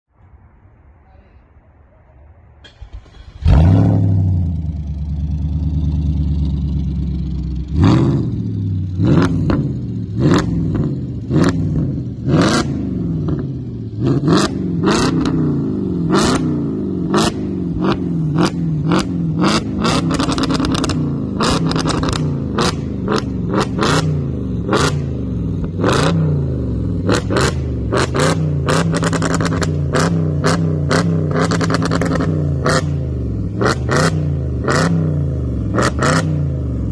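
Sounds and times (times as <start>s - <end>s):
car engine revving: 2.7s - 36.9s.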